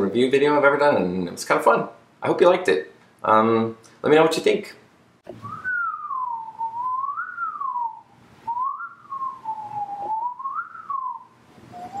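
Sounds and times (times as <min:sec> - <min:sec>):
man whistling a tune: 0:05.4 - 0:12.0.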